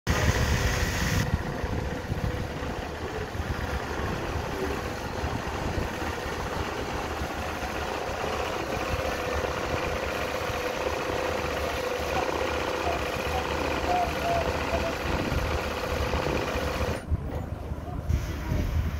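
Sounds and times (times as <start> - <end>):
sewing machine motor hum: 1.1 - 17.0.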